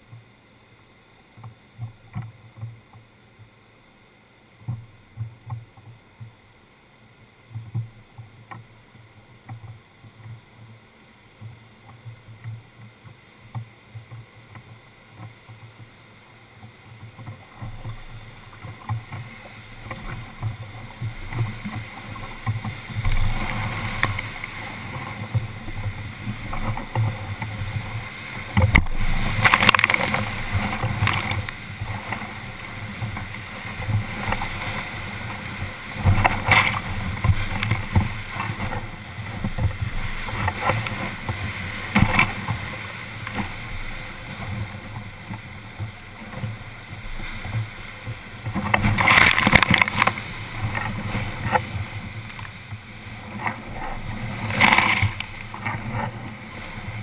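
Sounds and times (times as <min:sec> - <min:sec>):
waves breaking over boat: 0:00.0 - 0:57.0
whitewater rapid rushing: 0:14.3 - 0:57.0.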